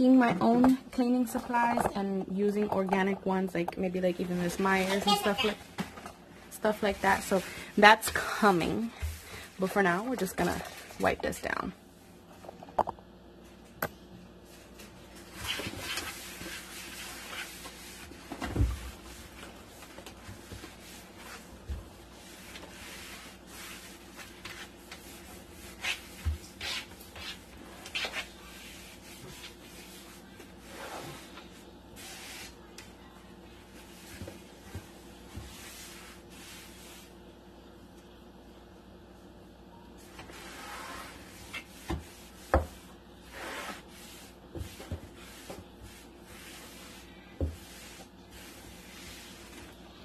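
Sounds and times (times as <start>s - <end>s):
paper towel wiping wood: 15.4s - 32.7s, 33.7s - 37.1s, 40.3s - 49.8s.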